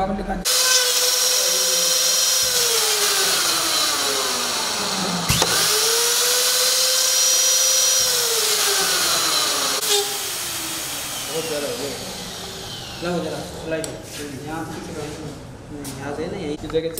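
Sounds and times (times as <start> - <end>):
router motor whining: 0.5 - 13.8.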